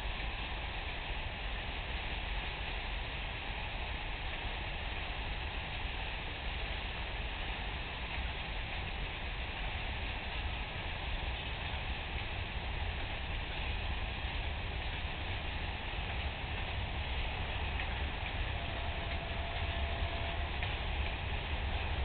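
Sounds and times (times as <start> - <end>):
freight wagons rumbling past: 14.9 - 22.0.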